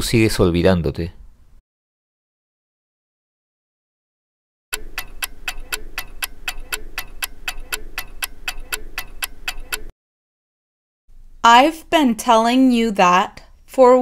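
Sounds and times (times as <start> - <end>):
clock ticking: 4.7 - 9.9.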